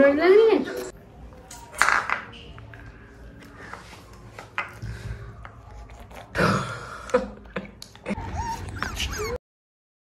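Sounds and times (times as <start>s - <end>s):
puppy whimpering: 8.1s - 9.4s.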